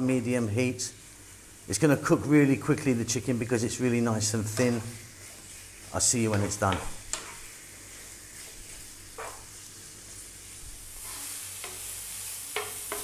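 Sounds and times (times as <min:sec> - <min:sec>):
chicken sizzling in a skillet: 0:00.0 - 0:13.0
wooden spoon scraping and tapping pan: 0:04.4 - 0:07.6, 0:08.4 - 0:09.6, 0:11.0 - 0:11.9, 0:12.5 - 0:13.0.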